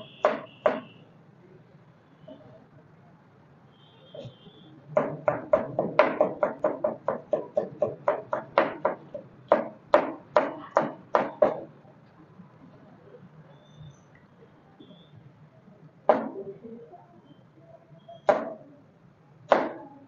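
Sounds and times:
knife chopping on plastic board: 5.0s - 11.7s.

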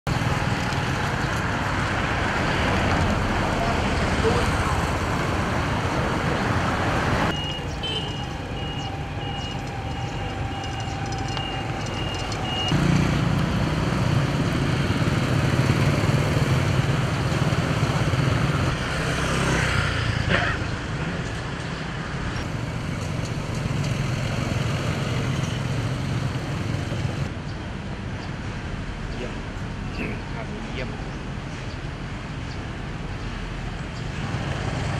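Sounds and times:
motorbikes and cars passing: 0.1s - 34.9s.

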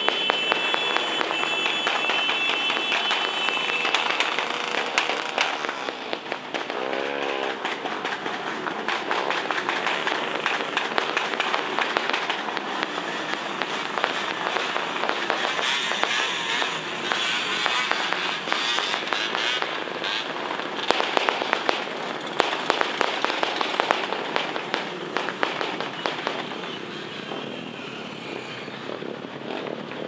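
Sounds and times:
motorcycles riding past: 3.3s - 30.0s
motorcycle engine revving: 4.1s - 7.8s.

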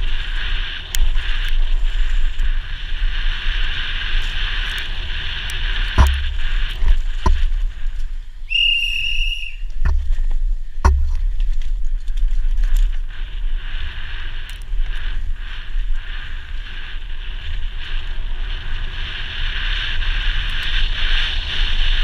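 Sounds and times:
wind and tyre rush: 0.0s - 22.0s
bike knocking over bumps: 5.9s - 7.9s, 9.8s - 12.9s.

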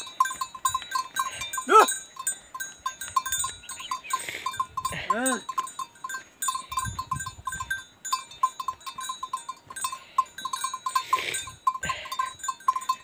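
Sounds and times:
small metal bells clinking: 0.0s - 13.0s.

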